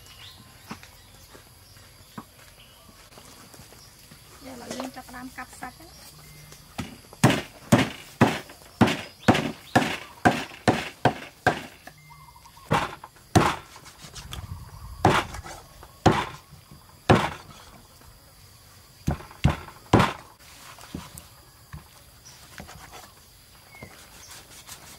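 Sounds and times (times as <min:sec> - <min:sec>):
cleaver chopping ribs on wood: 0:06.8 - 0:11.9, 0:12.7 - 0:13.8, 0:15.0 - 0:15.4, 0:16.0 - 0:16.4, 0:17.1 - 0:17.5, 0:19.0 - 0:20.3.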